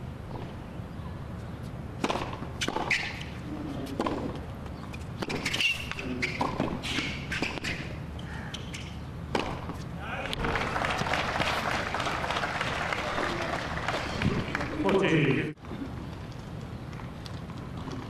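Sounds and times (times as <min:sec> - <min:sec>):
tennis ball bounces: 0:02.0 - 0:07.8, 0:08.6 - 0:11.6.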